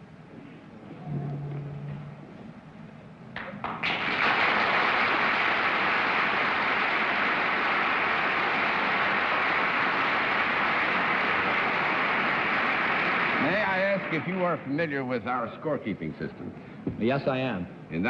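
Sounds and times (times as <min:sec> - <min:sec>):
audience applauding: 0:03.4 - 0:14.8.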